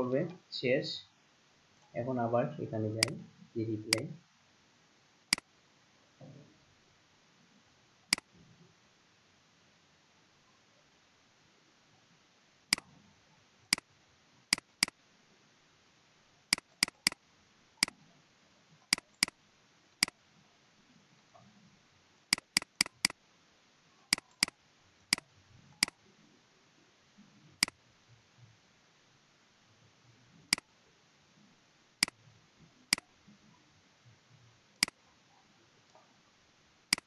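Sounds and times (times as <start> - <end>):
faint steady hiss: 0.0 - 37.0
mouse button clicking: 3.0 - 3.2, 3.9 - 4.1, 16.5 - 17.2, 18.9 - 19.4, 22.3 - 23.2, 24.1 - 24.5.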